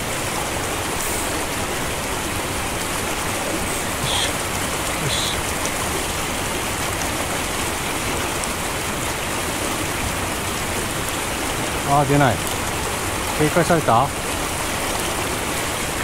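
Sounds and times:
stream water flowing: 0.0 - 16.0.

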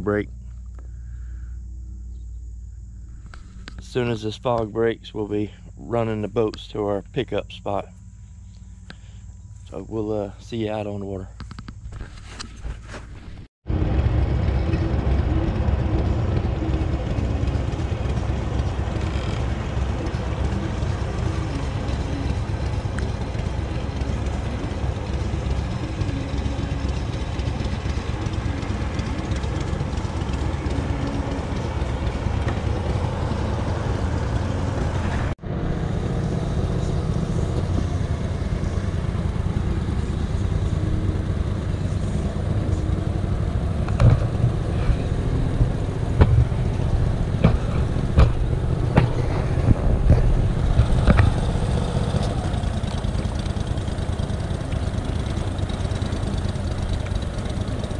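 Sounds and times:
boat motor running: 13.6 - 57.9.

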